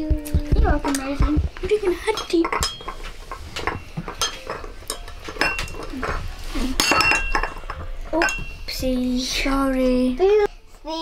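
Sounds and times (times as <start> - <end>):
teaspoon clinking against teacup: 2.1 - 6.2, 6.8 - 8.7.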